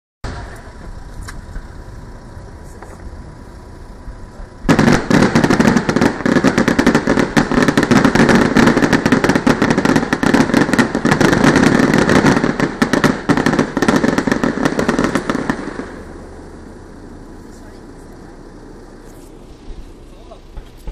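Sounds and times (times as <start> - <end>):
fireworks crackling and popping: 0.2 - 20.9.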